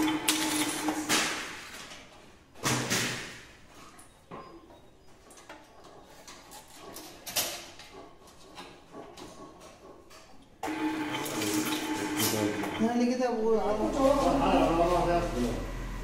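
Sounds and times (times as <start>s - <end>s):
cutting machine clanking: 10.6s - 13.1s.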